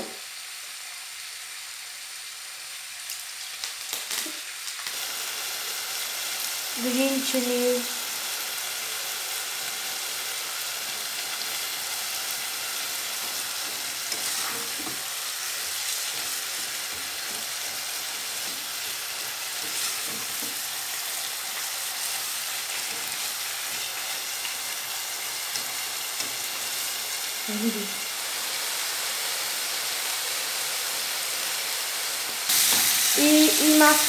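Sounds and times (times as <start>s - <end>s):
vegetables sizzling in a pan: 0.0s - 34.0s
spatula scraping a pan: 13.2s - 20.6s.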